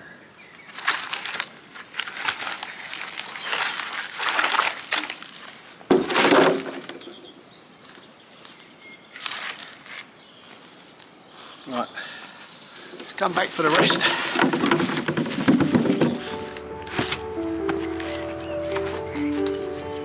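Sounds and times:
wooden logs knocking and scraping: 0.8s - 7.2s, 12.9s - 20.0s
log thudding into wheelbarrow: 5.9s - 7.1s, 13.6s - 19.7s.

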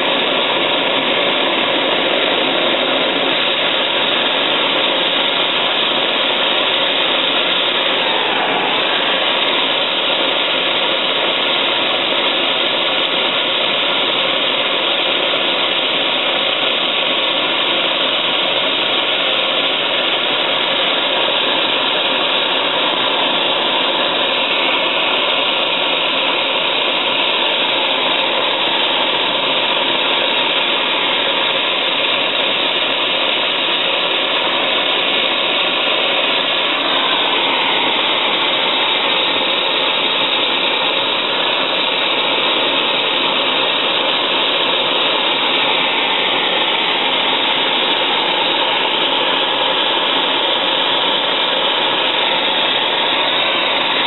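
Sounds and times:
gas torch hissing: 0.0s - 54.0s.

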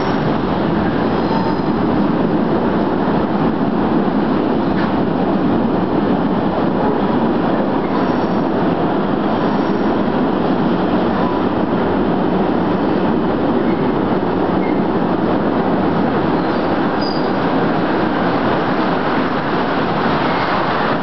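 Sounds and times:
train rumbling: 0.0s - 21.0s
faint high wheel squeal: 1.2s - 1.8s, 7.8s - 8.5s, 16.4s - 17.4s, 20.2s - 20.6s.

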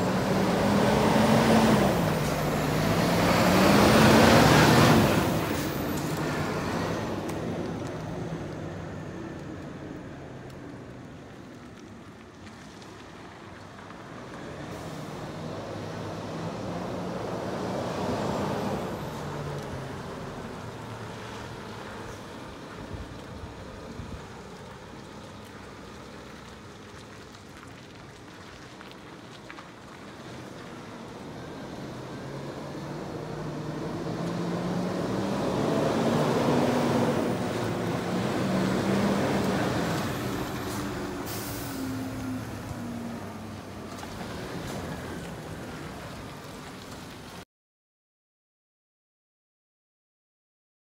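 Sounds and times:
diesel truck engine running: 0.0s - 11.2s, 30.6s - 46.7s
tyres on gravel: 0.0s - 47.4s
short hiss: 40.7s - 42.0s.

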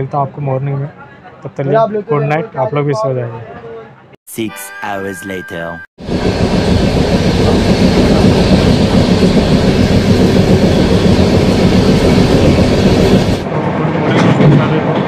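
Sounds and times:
train wheels rumbling on rails: 6.0s - 15.0s.

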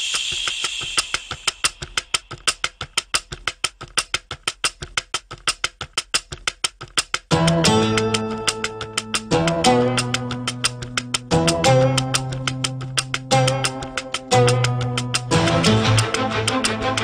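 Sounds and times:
rapid ticking beat: 0.0s - 17.0s
music with plucked guitar and bass: 7.3s - 17.0s.

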